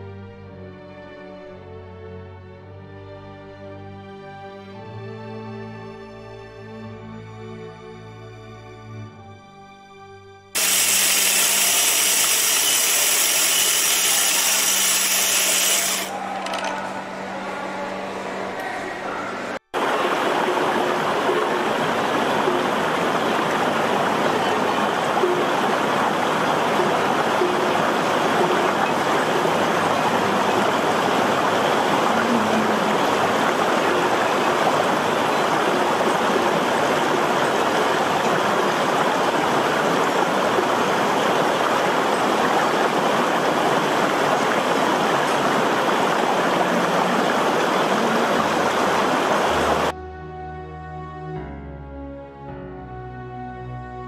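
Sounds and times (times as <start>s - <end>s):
stream rushing over rocks: 19.8s - 49.9s.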